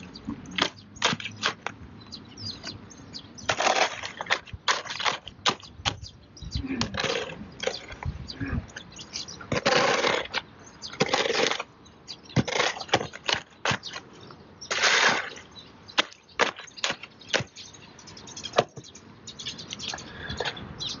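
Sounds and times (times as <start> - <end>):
shovel scraping wet concrete: 3.5 - 5.6, 6.8 - 8.0, 9.5 - 10.4, 11.0 - 11.7, 12.4 - 14.0, 14.6 - 17.5.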